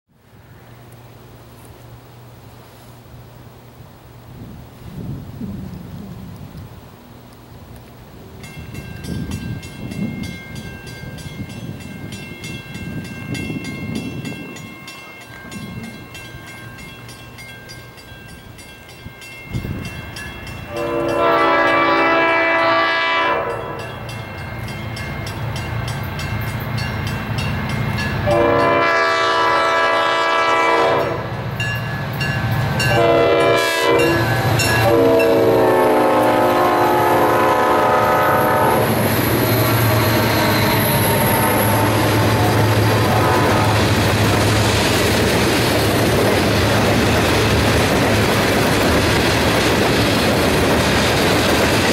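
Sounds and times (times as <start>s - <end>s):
locomotive engine rumble: 0.2s - 51.9s
train wheels rolling: 3.8s - 22.1s, 31.3s - 51.9s
locomotive air horn blasts: 20.7s - 23.9s, 28.2s - 31.3s, 32.8s - 39.0s, 39.6s - 44.0s.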